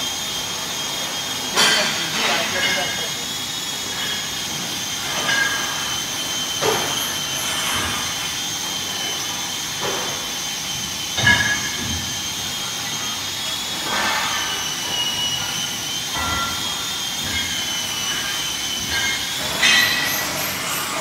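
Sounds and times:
high-pitched machine whine: 0.0 - 21.0.

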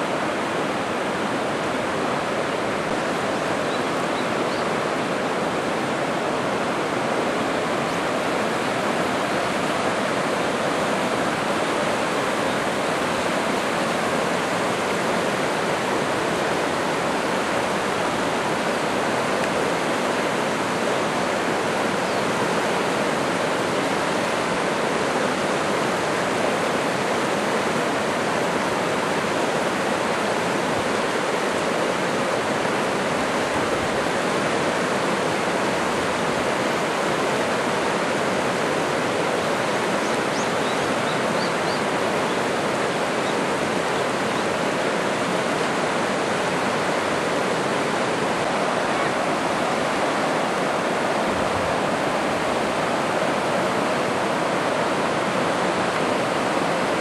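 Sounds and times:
river rapids rushing: 0.0 - 57.0.

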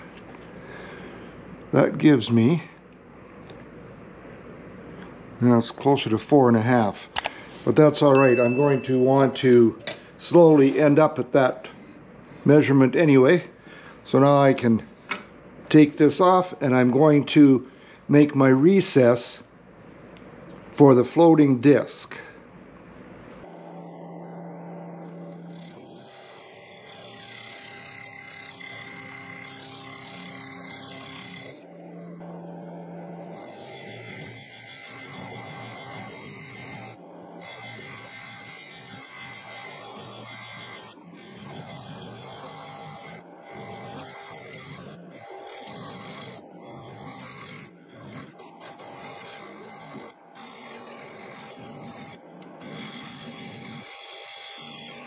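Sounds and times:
wood lathe running: 23.4 - 55.0.

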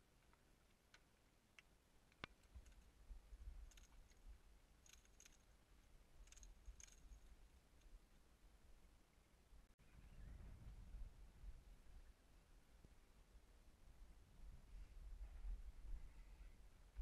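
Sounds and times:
faint clicks: 0.2 - 2.9, 3.6 - 4.2, 4.8 - 5.5, 6.2 - 7.9.

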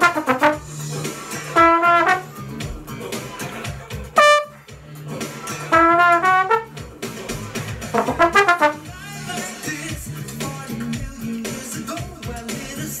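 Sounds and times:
trombone playing: 0.0 - 0.8, 1.5 - 2.4, 4.2 - 4.6, 5.7 - 6.8, 7.9 - 8.9
pop backing track: 0.0 - 13.0.

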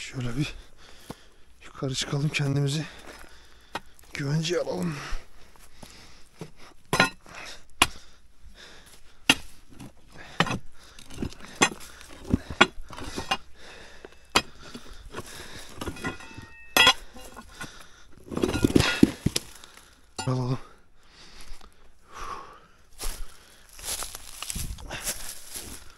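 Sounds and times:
scuffing and scraping on rocks: 2.0 - 7.1, 8.9 - 20.0, 23.0 - 25.9
stones knocking and clinking: 6.4 - 8.0, 14.3 - 20.3.

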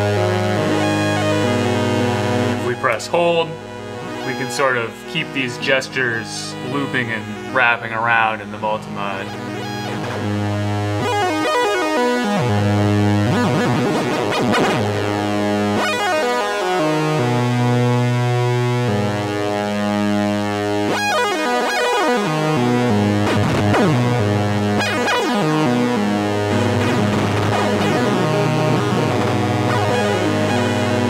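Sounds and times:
looping synthesizer arpeggio: 0.0 - 17.5, 23.7 - 31.0.

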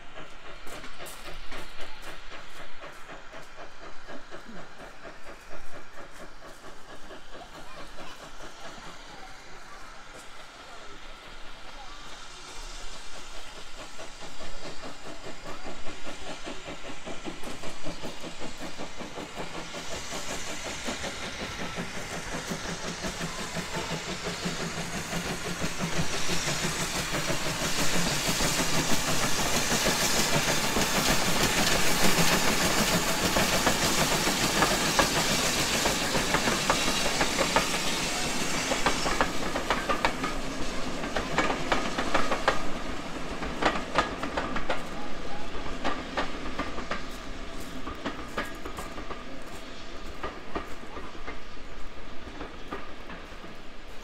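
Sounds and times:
steam hiss: 0.0 - 54.0
steam locomotive exhaust beats: 0.0 - 54.0
train wheels clattering over rail joints: 12.6 - 54.0.

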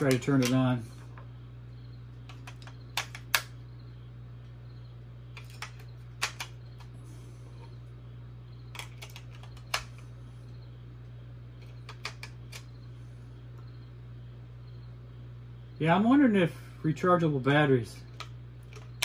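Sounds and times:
low hum: 0.0 - 19.0
batteries clicking into holder: 2.2 - 3.5, 5.3 - 6.9, 8.7 - 10.0, 11.6 - 12.7.

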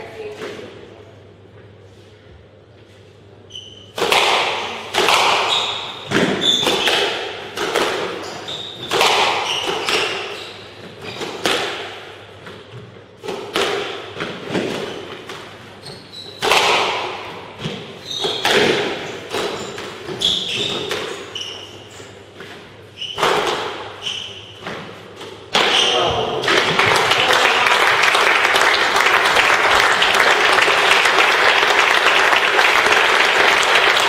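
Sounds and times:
squash ball cracking off rackets: 4.0 - 8.2, 8.8 - 10.3, 12.6 - 15.5, 16.4 - 21.2
shoes squeaking on wooden floor: 5.4 - 7.0, 8.1 - 11.3, 15.8 - 16.5, 17.6 - 26.4.

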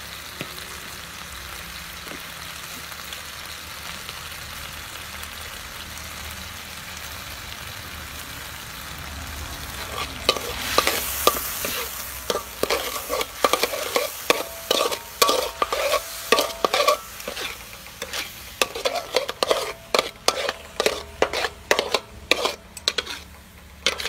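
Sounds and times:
garlic sizzling in oil: 0.0 - 24.0
metal spatula scraping wok: 9.7 - 24.0.

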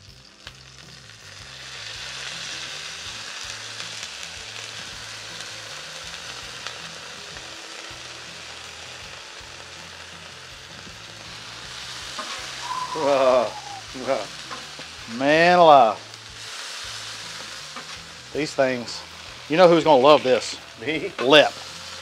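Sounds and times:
tacos sizzling on griddle: 0.0 - 22.0.

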